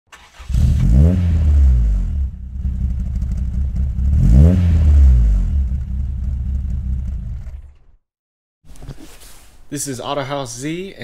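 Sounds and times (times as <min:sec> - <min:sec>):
car engine revving: 0:00.1 - 0:08.0.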